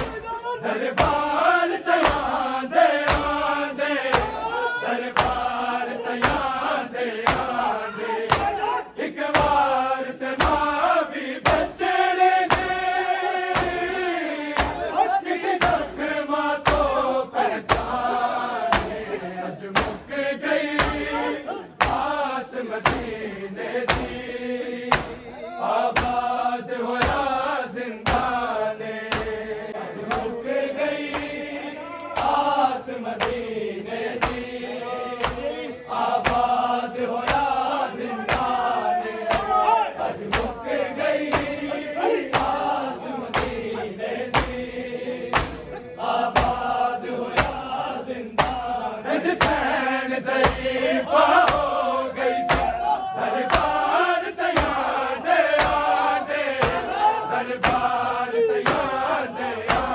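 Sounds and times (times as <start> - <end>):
men chanting a lament: 0.0 - 59.9
hands striking chests: 12.5 - 12.9, 19.8 - 20.1, 24.9 - 25.2, 26.0 - 26.3, 29.1 - 29.4, 35.2 - 35.5, 41.2 - 41.7, 43.3 - 43.6, 45.3 - 45.7, 48.3 - 48.7, 51.3 - 52.9, 54.5 - 57.0.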